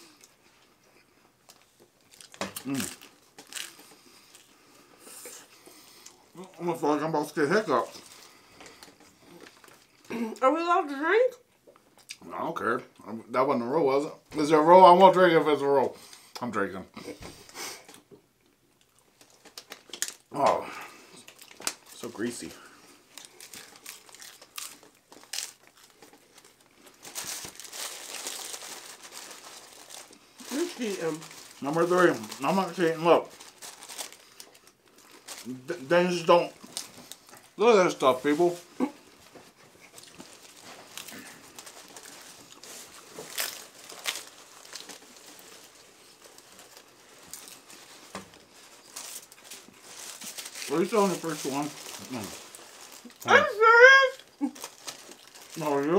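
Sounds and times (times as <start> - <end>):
crunchy tacos being chewed: 0.0 - 6.6, 7.8 - 10.2, 17.4 - 32.4, 36.5 - 37.6, 38.6 - 53.3, 54.2 - 55.7
paper wrappers crinkling: 1.5 - 6.0, 19.1 - 55.9.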